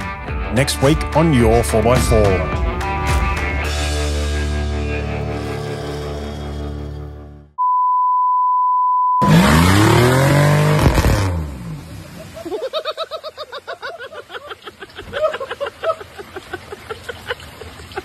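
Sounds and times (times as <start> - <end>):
test tone: 7.6 - 9.9
truck engine revving: 9.2 - 12.2
wheels spraying mud: 9.2 - 18.0.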